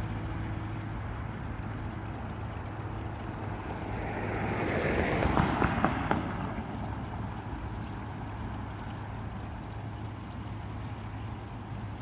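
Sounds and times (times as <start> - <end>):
road and wind noise: 0.0 - 12.0
car driving past: 3.1 - 7.3.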